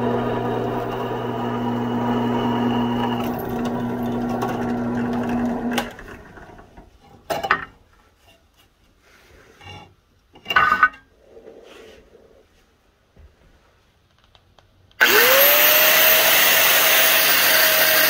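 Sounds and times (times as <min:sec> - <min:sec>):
drill bit cutting steel: 0:00.0 - 0:05.8, 0:15.0 - 0:18.0
drill press motor running: 0:00.0 - 0:06.3, 0:15.0 - 0:18.0.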